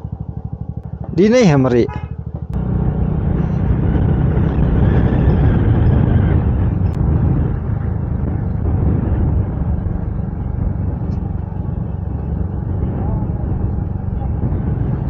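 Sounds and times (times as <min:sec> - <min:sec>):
motorcycle engine: 0:00.0 - 0:15.0.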